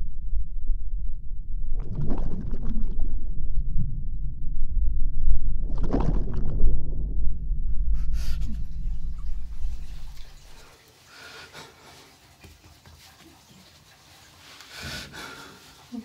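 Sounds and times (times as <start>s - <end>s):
muffled underwater rumble: 0.0s - 10.7s.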